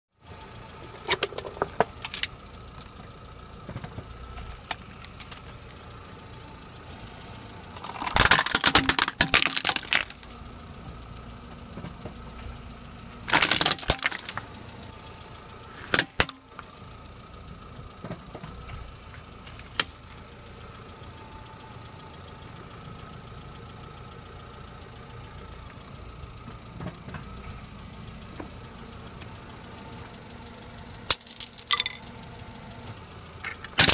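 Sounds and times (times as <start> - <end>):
car engine running: 0.2 - 33.9
tyre crushing cup and plastic: 7.8 - 10.3, 13.3 - 14.4.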